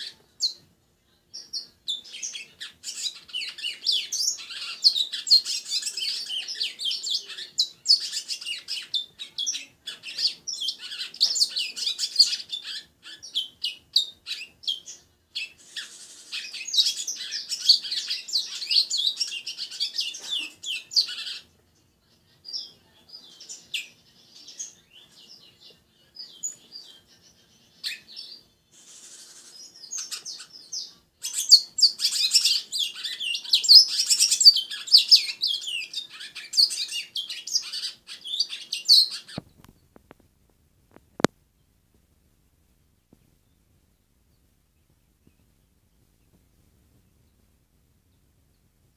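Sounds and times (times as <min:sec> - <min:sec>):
songbird rapid high chirping: 0:22.4 - 0:39.9.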